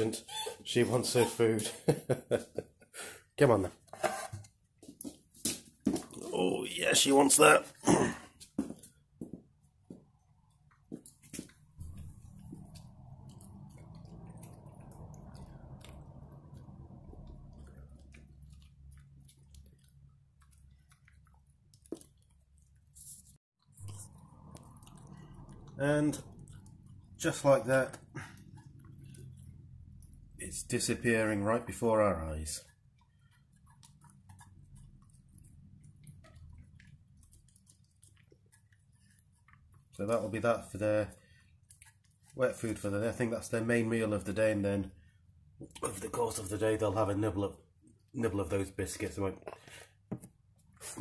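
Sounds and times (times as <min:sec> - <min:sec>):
dog chewing wet food: 0:09.4 - 0:23.0, 0:23.7 - 0:44.6.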